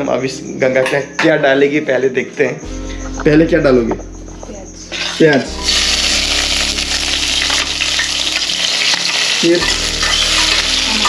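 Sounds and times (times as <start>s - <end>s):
onions sizzling in hot oil: 4.9s - 11.0s.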